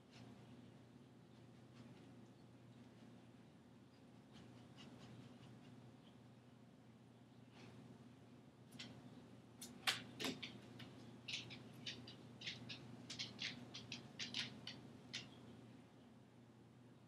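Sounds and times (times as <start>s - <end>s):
dog claws clicking on floor: 9.6s - 15.4s.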